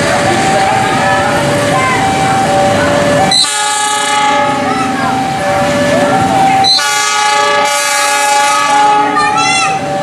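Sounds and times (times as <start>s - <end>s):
locomotive horn blasts: 3.3s - 4.6s, 6.6s - 9.3s.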